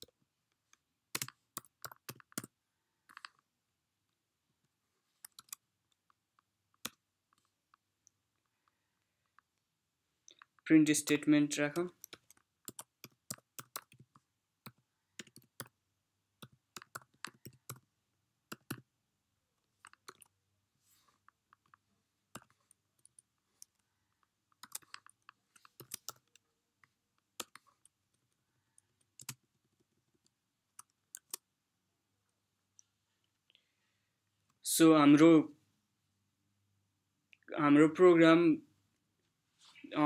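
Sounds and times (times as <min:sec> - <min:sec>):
computer keyboard typing: 0:01.1 - 0:03.4, 0:05.2 - 0:05.6, 0:12.0 - 0:15.8, 0:16.4 - 0:17.9, 0:18.5 - 0:18.9, 0:19.8 - 0:20.3, 0:24.6 - 0:26.4, 0:27.3 - 0:27.9, 0:28.8 - 0:31.4.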